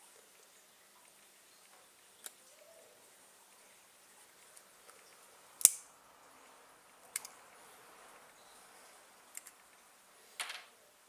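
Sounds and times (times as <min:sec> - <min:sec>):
small parts clicking: 0:07.1 - 0:07.4, 0:09.3 - 0:09.6.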